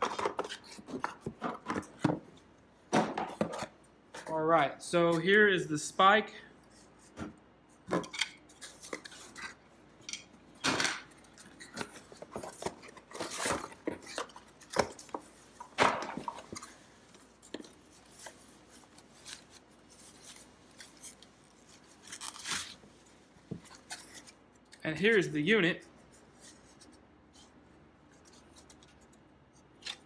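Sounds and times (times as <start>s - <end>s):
foam wrapping rustling: 11.2s - 24.4s.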